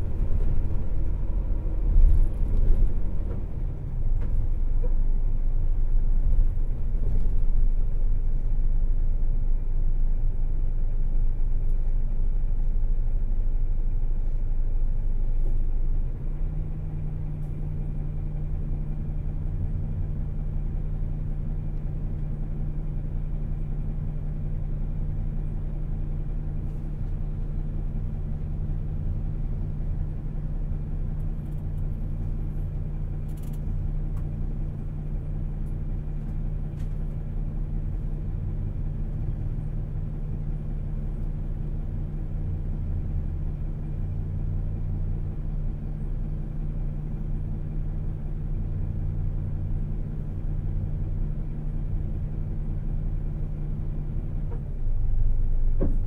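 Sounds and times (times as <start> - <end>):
bus diesel engine drone: 0.0 - 56.0
road rumble: 0.0 - 56.0.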